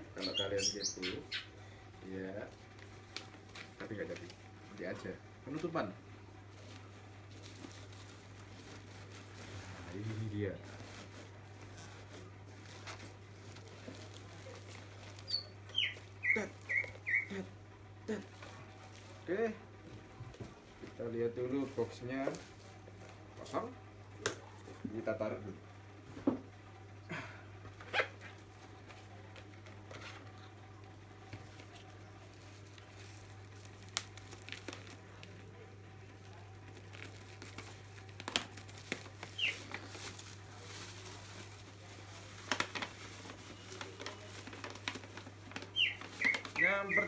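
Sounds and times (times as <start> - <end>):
paper and bubble wrap rustling: 0.0 - 1.3, 2.0 - 25.3, 27.7 - 47.0.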